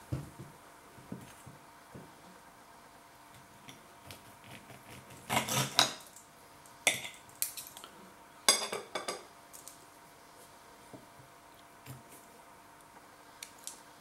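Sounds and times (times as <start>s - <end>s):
knife and fork scraping a plate: 4.9s - 6.0s.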